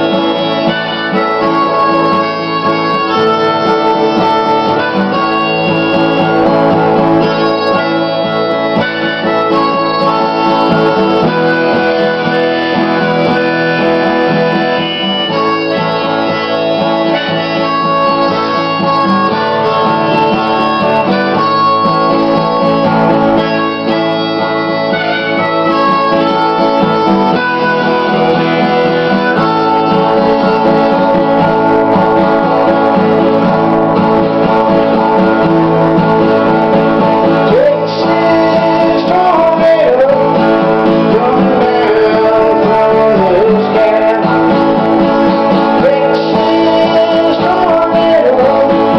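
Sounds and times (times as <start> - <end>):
harmonica melody: 0.0 - 48.9
strummed acoustic guitar: 0.0 - 48.9.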